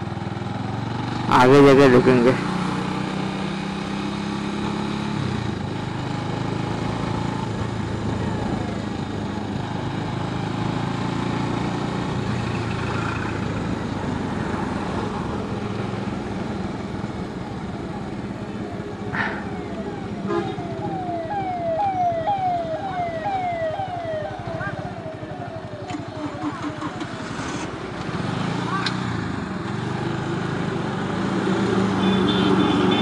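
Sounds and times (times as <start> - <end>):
road noise: 0.0 - 33.0
motorcycle engine running: 15.2 - 27.8.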